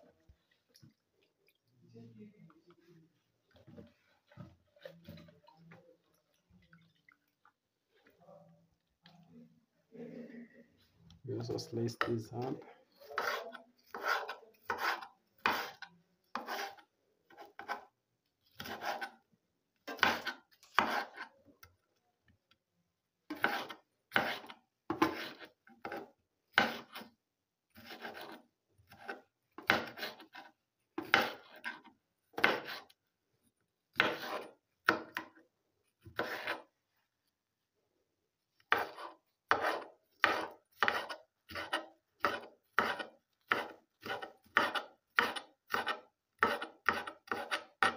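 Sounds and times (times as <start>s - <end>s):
knife slicing pepper on cutting board: 13.1s - 17.9s, 18.5s - 19.2s, 19.9s - 21.3s, 23.3s - 27.1s, 27.7s - 32.9s, 33.9s - 35.3s, 36.1s - 36.7s, 38.7s - 47.9s.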